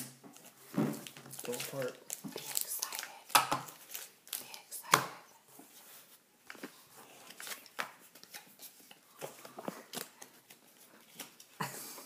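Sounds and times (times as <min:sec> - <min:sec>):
cards rustling: 0:00.4 - 0:04.7, 0:05.7 - 0:11.6.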